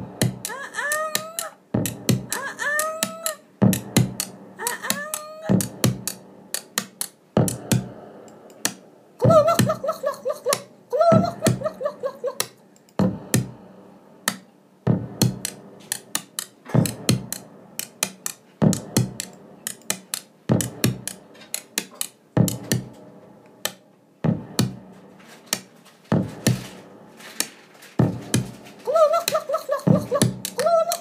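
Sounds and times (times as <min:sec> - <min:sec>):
dance music from a record: 0:01.8 - 0:02.4, 0:05.5 - 0:06.2, 0:07.4 - 0:07.9, 0:11.1 - 0:11.8, 0:14.9 - 0:15.6, 0:16.7 - 0:17.4, 0:18.6 - 0:19.3, 0:20.5 - 0:21.2, 0:24.3 - 0:24.9, 0:26.1 - 0:26.8, 0:28.0 - 0:28.6, 0:29.2 - 0:31.0.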